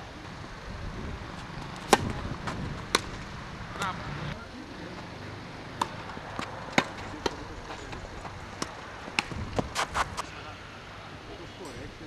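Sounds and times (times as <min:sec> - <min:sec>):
tennis ball bouncing on court: 0:01.4 - 0:03.9, 0:05.7 - 0:10.2
tennis ball hitting racket: 0:01.4 - 0:03.9, 0:05.7 - 0:10.2.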